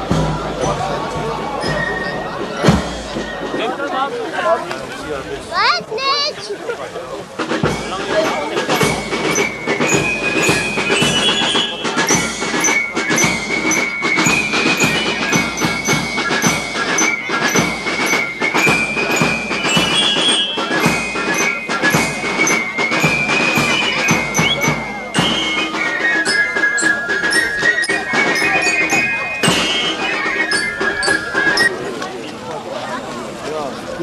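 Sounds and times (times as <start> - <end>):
rapid percussion beat: 0.0 - 3.9, 7.2 - 31.9
melody of held high notes: 7.6 - 31.8.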